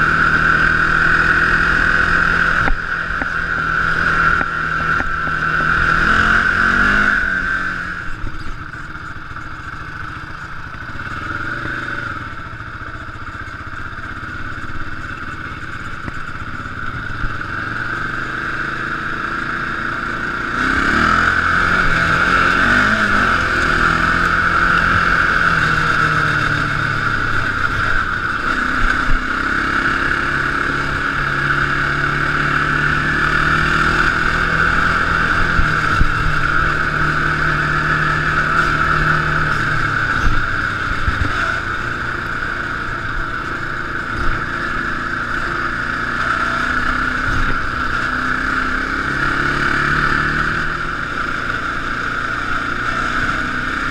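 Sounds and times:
quad bike engine revving: 0:00.0 - 0:53.9.

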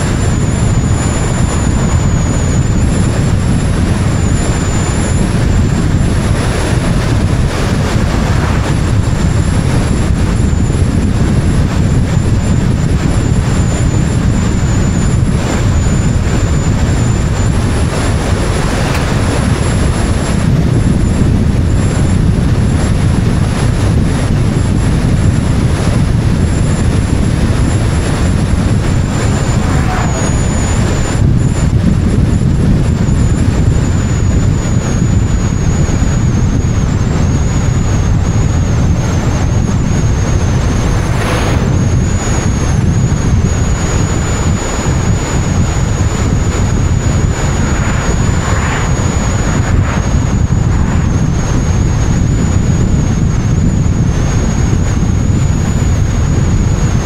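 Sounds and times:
tyre and road noise: 0:00.0 - 0:13.2, 0:25.8 - 0:33.0, 0:37.0 - 0:53.7
faint high whine: 0:00.0 - 0:57.0
wind on microphone: 0:00.0 - 0:57.0.

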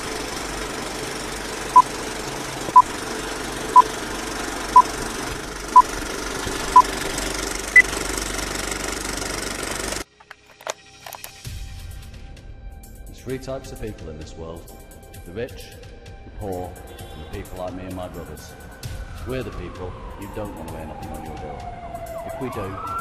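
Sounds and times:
film projector clatter: 0:00.0 - 0:10.0.

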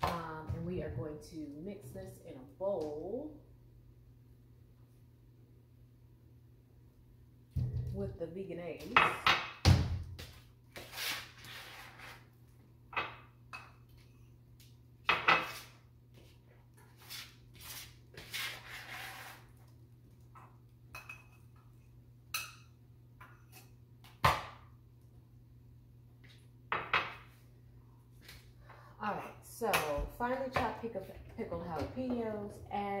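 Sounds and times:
scraping on countertop: 0:10.7 - 0:12.3, 0:15.1 - 0:19.7.

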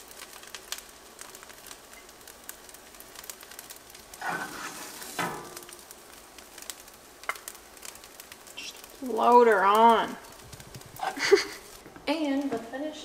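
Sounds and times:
food sizzling in frying pan: 0:00.0 - 0:13.0
spoon scraping pan: 0:04.1 - 0:05.7.

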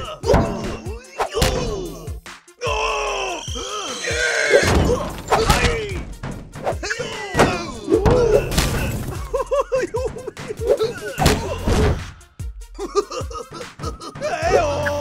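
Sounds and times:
background music: 0:00.0 - 0:15.0
cartoon hits and crashes: 0:00.3 - 0:01.8, 0:07.4 - 0:09.2.

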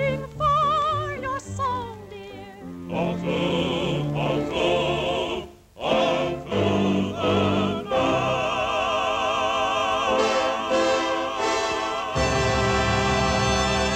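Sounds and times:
operatic singing with orchestra: 0:02.8 - 0:13.9.

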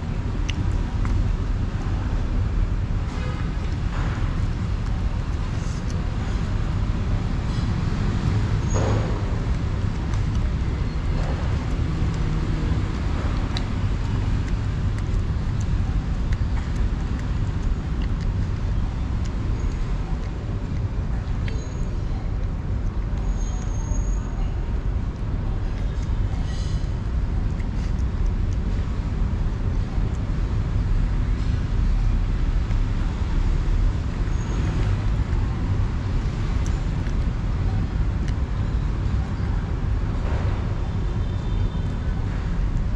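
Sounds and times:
city traffic rumble: 0:00.0 - 0:42.9
cat chewing wet food: 0:00.1 - 0:23.9, 0:24.6 - 0:40.2.

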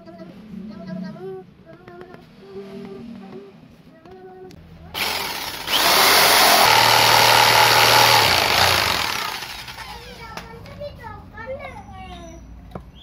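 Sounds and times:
electric jigsaw cutting wood: 0:05.0 - 0:09.9.

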